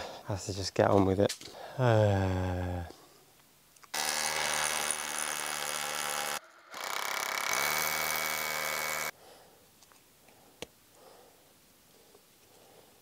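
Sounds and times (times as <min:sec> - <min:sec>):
power drill running: 0:03.9 - 0:09.2.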